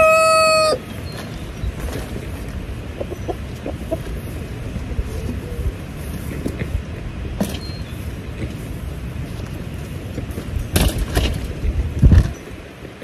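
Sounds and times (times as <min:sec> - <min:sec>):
wind rumbling on microphone: 0:00.0 - 0:13.0
knocks and rustles: 0:10.2 - 0:12.5.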